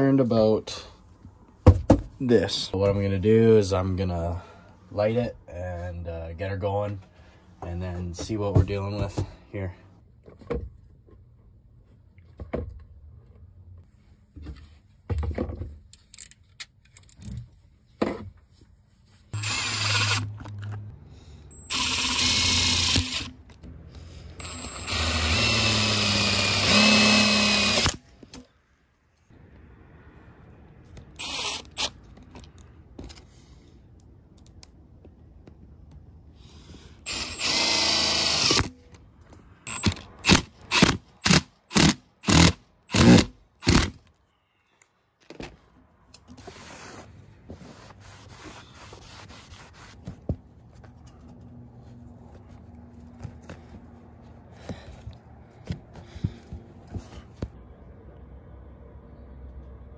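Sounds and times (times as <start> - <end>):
impact driver running: 19.4 - 20.3, 21.7 - 23.3, 24.4 - 28.0, 37.1 - 38.7, 39.7 - 43.9.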